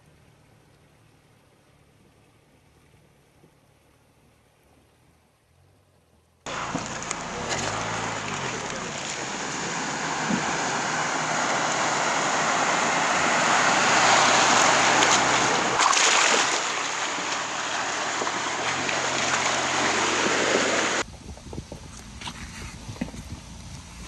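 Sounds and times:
low engine hum: 0.0 - 24.0
tyres splashing water: 6.5 - 21.0.

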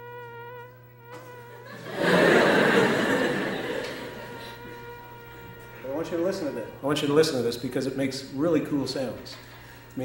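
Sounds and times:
audience laughing: 1.6 - 4.8
singing flame tone: 3.4 - 7.2.

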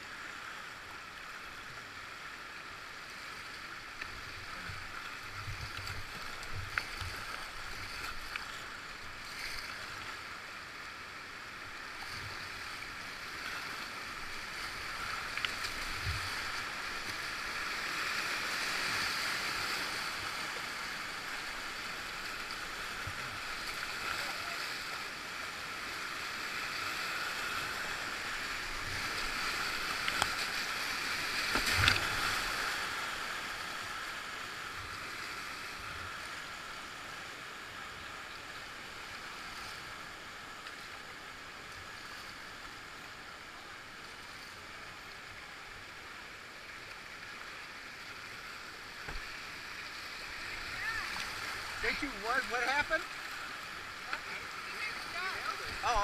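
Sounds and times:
whitewater river rushing: 12.6 - 34.8, 48.4 - 56.0
knocks and splashes: 31.4 - 32.6.

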